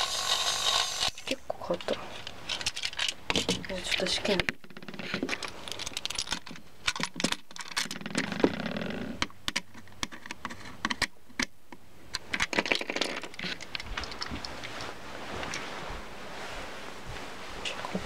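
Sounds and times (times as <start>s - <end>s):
plastic toy train clicks and rattles: 0.0s - 11.5s, 12.1s - 14.3s.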